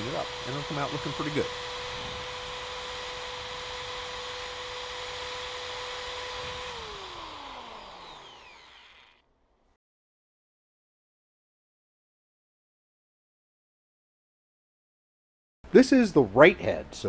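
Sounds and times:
electric drill whining: 0.0s - 9.3s.

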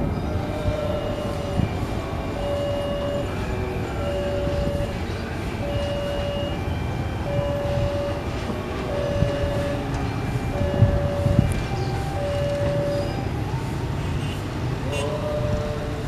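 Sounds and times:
level-crossing warning alarm: 0.0s - 16.0s
motorcycle engines: 0.0s - 16.0s
train rumble: 0.0s - 16.0s.

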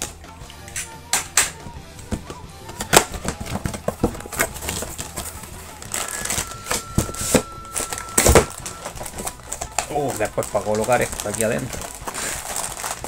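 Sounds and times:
cardboard box being opened: 3.2s - 9.7s.

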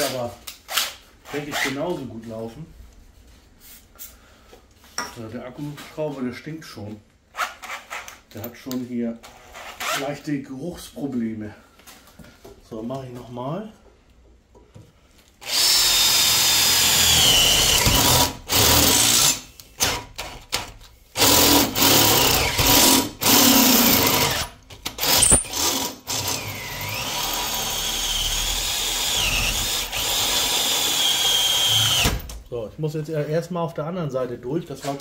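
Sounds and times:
cordless drill whining through steel: 15.4s - 20.1s, 21.2s - 32.2s.

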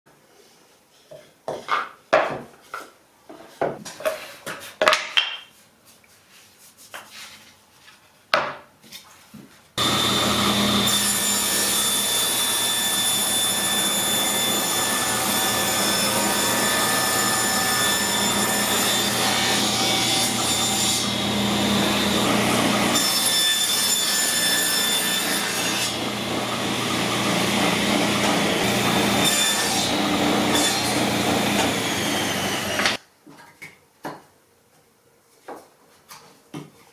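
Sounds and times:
table saw cutting wood: 9.8s - 33.0s.

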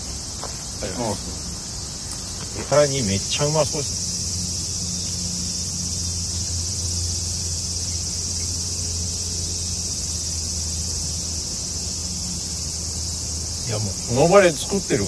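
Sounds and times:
insects droning: 0.0s - 15.0s
low steady hum: 3.2s - 15.0s.

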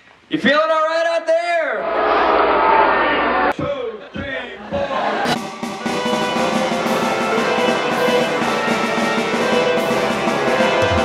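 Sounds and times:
marching band with drums and horns: 4.8s - 11.0s.

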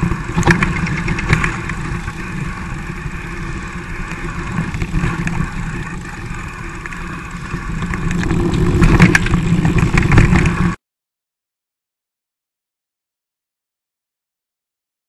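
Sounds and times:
bike rattling over bumps: 0.0s - 10.8s.

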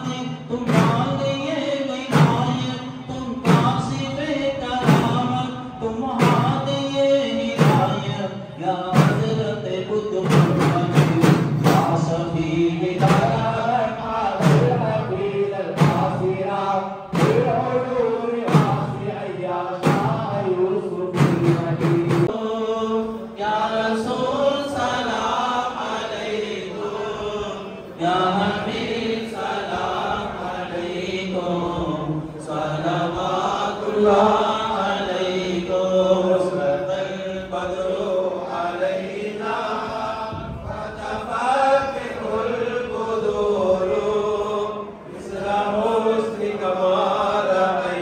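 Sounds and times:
frame drums beating: 0.0s - 22.4s
men chanting in unison: 0.0s - 48.0s.

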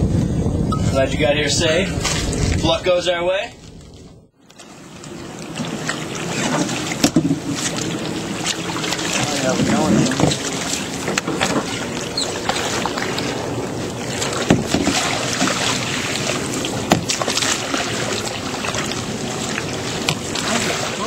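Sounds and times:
wind and water rushing: 0.0s - 21.0s
paddle strokes splashing: 4.4s - 21.0s
knocks against canoe hull: 14.4s - 15.0s, 16.9s - 17.3s.

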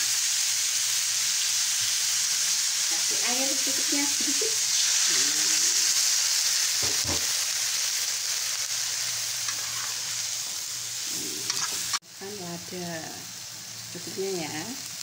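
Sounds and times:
vegetables sizzling in a wok: 0.0s - 15.0s
knock: 6.8s - 7.3s.

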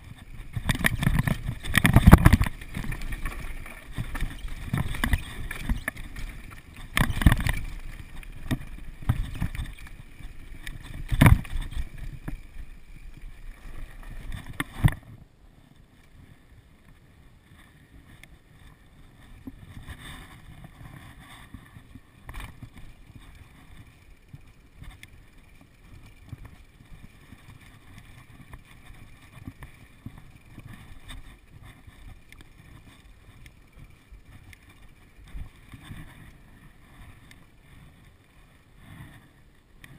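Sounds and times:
wind on microphone: 0.0s - 15.1s
bike rattling: 0.0s - 15.2s, 17.5s - 39.3s
quiet steady noise: 0.0s - 39.9s.

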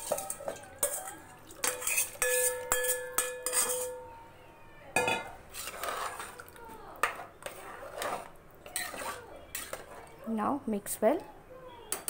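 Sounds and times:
spoon scraping metal pan: 0.0s - 4.0s, 5.0s - 10.2s
pot ringing: 0.0s - 4.1s, 5.0s - 5.4s.

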